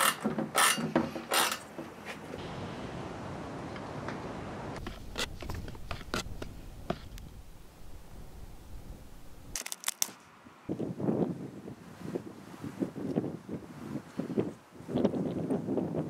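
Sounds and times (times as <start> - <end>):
wind buffeting microphone: 2.3 - 9.6, 10.6 - 16.0
stick tapping and scraping can: 4.8 - 7.2.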